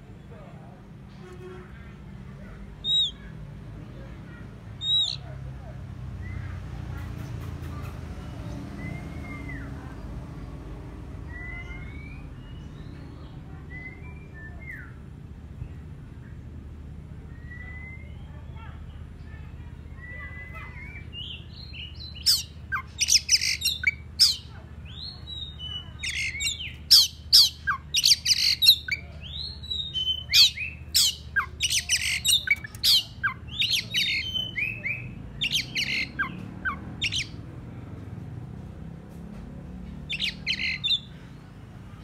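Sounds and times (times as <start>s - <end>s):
magpie-robin harsh scolding calls: 2.8s - 3.4s, 4.7s - 5.3s, 20.5s - 37.4s, 40.1s - 41.1s.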